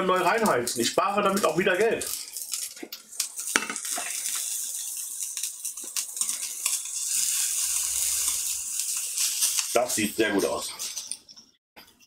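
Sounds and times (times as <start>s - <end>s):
steak sizzling in a frying pan: 0.0s - 11.2s.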